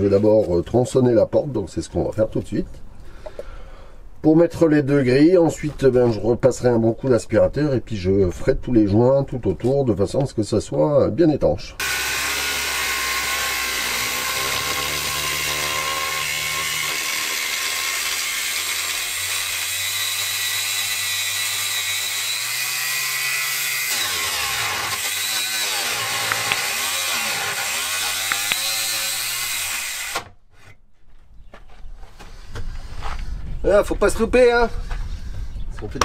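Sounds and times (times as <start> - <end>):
electric power tool cutting metal: 11.8 - 30.3.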